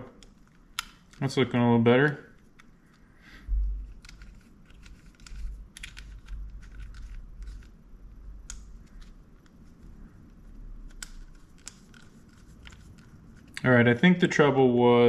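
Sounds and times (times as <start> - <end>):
handling bumps and rumble: 3.5 - 3.9.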